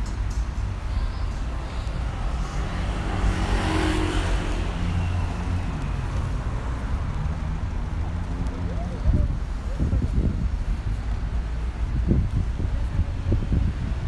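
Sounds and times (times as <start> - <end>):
low engine rumble: 0.0 - 14.0
vehicle passing: 1.4 - 12.1.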